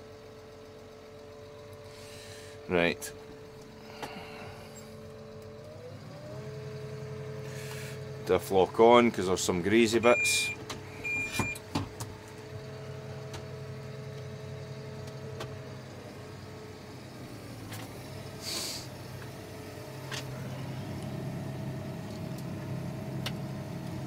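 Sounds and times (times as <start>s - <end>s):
tractor engine running: 0.0s - 24.0s
brief hiss: 18.4s - 18.9s.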